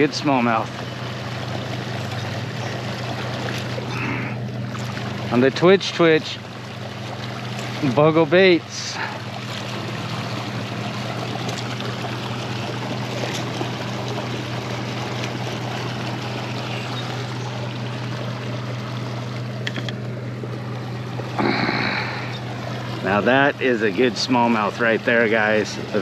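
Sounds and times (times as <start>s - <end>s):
low hum: 0.0s - 26.0s
water rushing from outflow: 0.0s - 26.0s.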